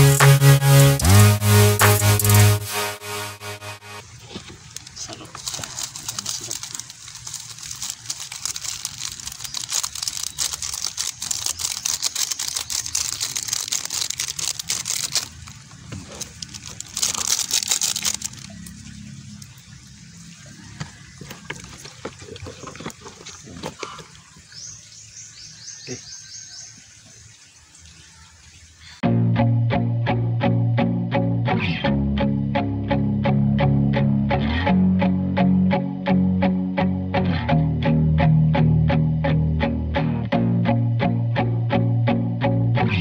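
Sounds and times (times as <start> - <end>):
liquid pouring and splashing: 0.0 - 2.8, 4.0 - 24.7
guitar music: 0.0 - 4.0, 29.0 - 43.0
wet handling sounds: 4.2 - 19.6, 20.8 - 24.6.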